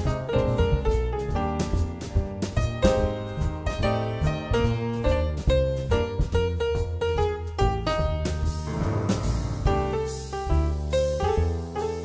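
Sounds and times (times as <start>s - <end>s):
grand piano: 0.0s - 12.0s
upright double bass: 0.0s - 12.0s
drum kit cymbal strokes: 8.5s - 12.0s.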